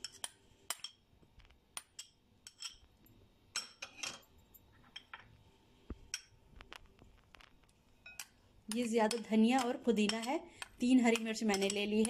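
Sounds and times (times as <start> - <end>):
metal spoon clinking on plate: 1.8 - 2.8, 3.5 - 4.3, 11.1 - 12.0.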